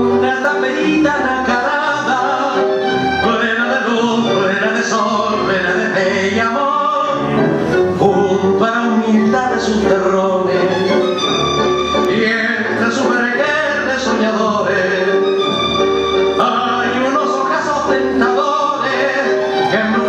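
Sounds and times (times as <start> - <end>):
person singing: 0.0 - 11.3, 12.0 - 15.5, 16.3 - 20.0
orchestra playing waltz: 0.0 - 20.0.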